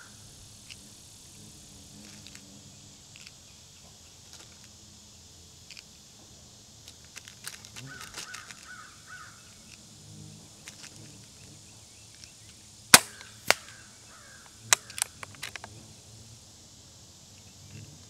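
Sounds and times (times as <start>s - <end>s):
air rifle shot crack: 12.9s - 13.8s
quieter crack: 12.9s - 15.7s
light clicks: 14.4s - 15.8s.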